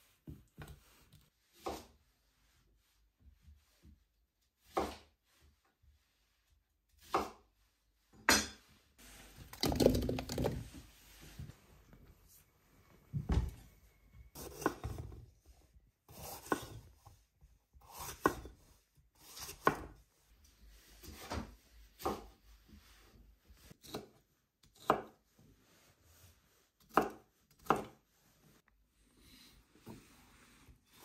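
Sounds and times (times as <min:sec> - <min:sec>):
knife cutting on wooden board: 0:14.4 - 0:15.1, 0:16.1 - 0:16.9, 0:17.8 - 0:18.6, 0:19.2 - 0:20.0, 0:26.8 - 0:28.0.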